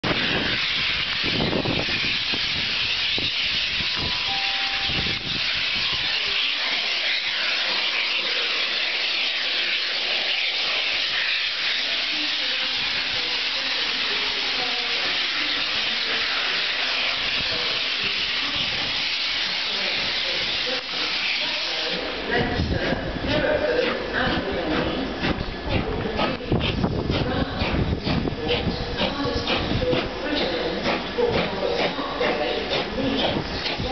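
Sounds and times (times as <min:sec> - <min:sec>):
steam hissing: 0:00.0 - 0:33.9
low rumbling thumps: 0:24.3 - 0:31.9.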